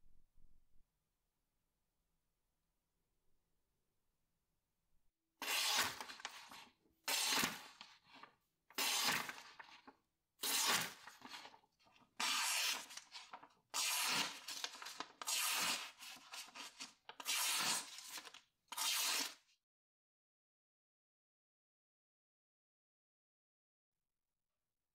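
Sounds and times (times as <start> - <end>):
knife slicing paper: 5.4 - 11.6, 12.2 - 19.4.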